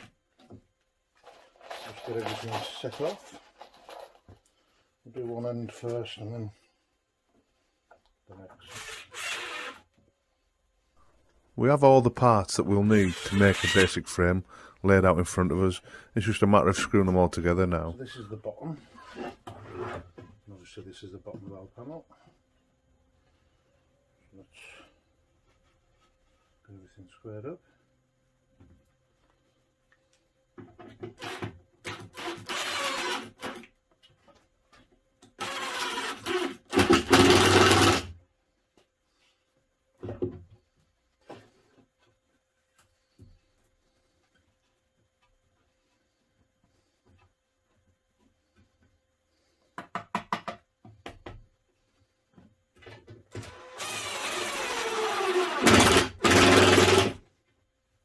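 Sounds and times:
cordless drill driving screws: 0:08.7 - 0:09.8, 0:31.2 - 0:33.7, 0:35.4 - 0:38.1, 0:53.3 - 0:57.2.

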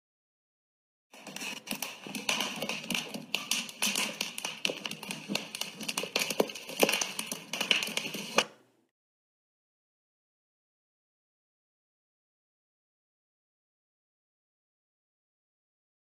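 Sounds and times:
open fire crackling and popping: 0:01.2 - 0:08.6.

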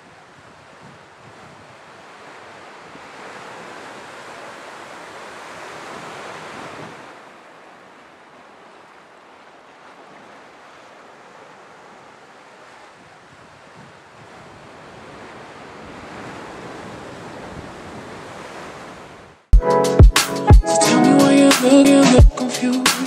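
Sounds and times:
sea waves washing over rocks: 0:00.0 - 0:19.1.

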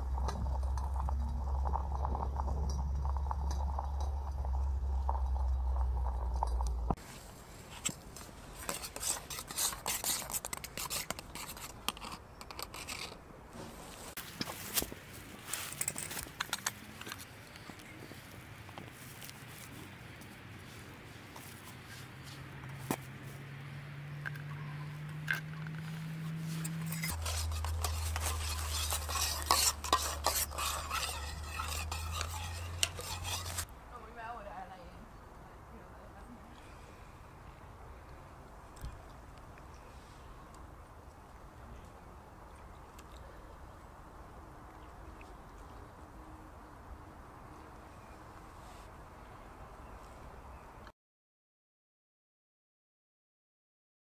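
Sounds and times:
low steady hum: 0:00.0 - 0:07.6.

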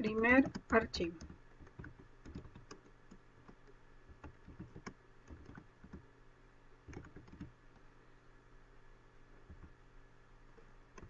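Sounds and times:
faint typing on a keyboard: 0:00.0 - 0:06.1, 0:06.8 - 0:07.9, 0:09.4 - 0:09.8.

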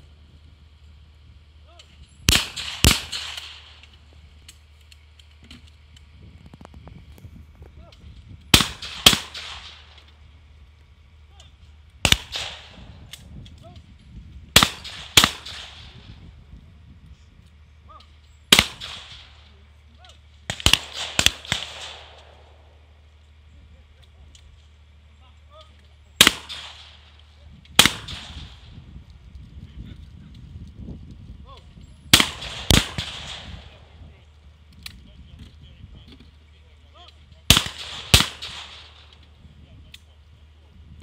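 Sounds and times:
shotgun shots with echo: 0:02.3 - 0:03.9, 0:08.5 - 0:10.0, 0:12.0 - 0:12.9, 0:14.6 - 0:16.1, 0:18.5 - 0:19.5, 0:20.5 - 0:22.7, 0:26.2 - 0:28.7, 0:32.1 - 0:33.9, 0:37.5 - 0:39.2.

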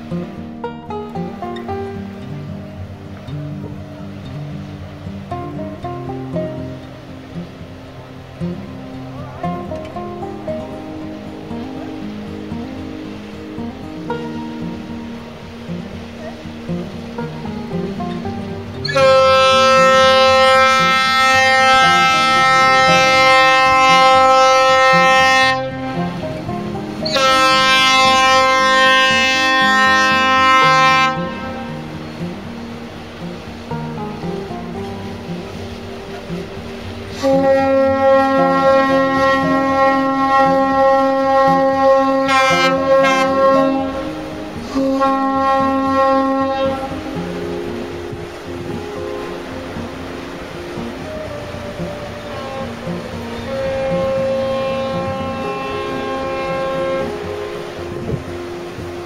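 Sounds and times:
tugboat horn blast: 0:17.1 - 0:48.5, 0:50.4 - 0:58.8.

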